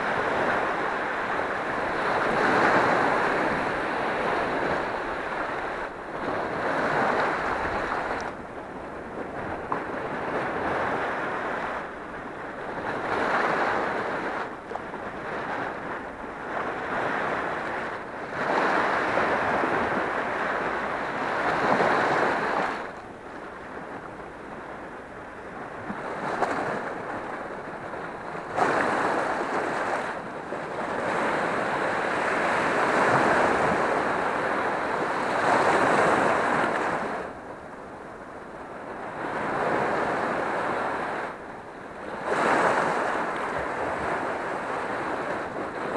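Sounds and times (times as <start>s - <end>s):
sea waves breaking on rocks: 0.0s - 8.4s, 25.7s - 37.4s, 42.0s - 45.9s.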